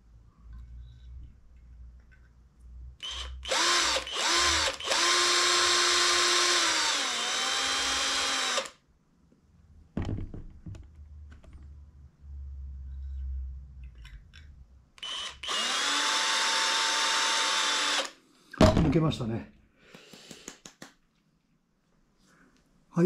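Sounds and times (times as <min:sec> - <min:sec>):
cordless drill motor whining: 0:03.0 - 0:08.8, 0:15.0 - 0:18.2.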